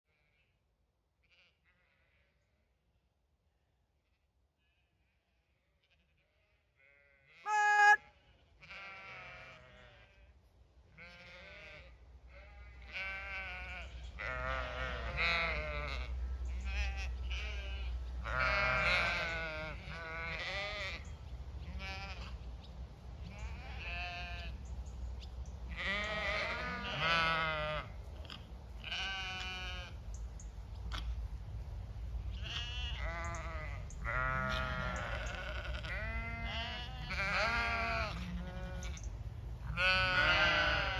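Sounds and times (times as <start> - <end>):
flock of sheep bleating: 1.2 - 2.4, 5.8 - 10.3, 10.9 - 22.4, 23.2 - 24.6, 25.7 - 28.0, 28.8 - 30.0, 32.3 - 39.0, 39.6 - 40.9
loud sheep call: 6.8 - 10.3, 11.0 - 22.4, 23.3 - 24.6, 25.7 - 27.9, 28.8 - 30.0, 32.3 - 39.0, 39.6 - 40.9.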